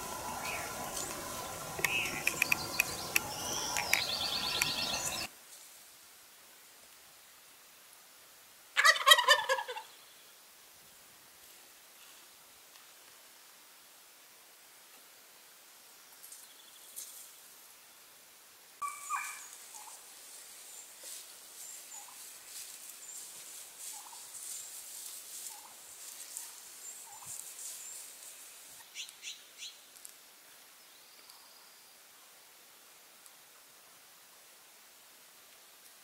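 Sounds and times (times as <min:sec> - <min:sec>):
sharp high calls: 0:00.0 - 0:05.3, 0:18.8 - 0:19.9
turkey gobbling: 0:08.8 - 0:09.9, 0:18.8 - 0:20.0.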